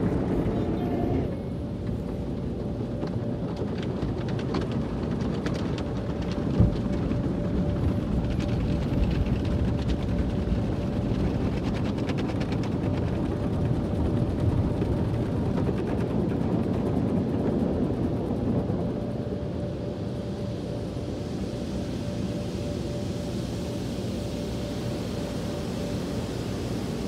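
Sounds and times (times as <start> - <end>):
car wash machinery rumbling: 0.0 - 15.5.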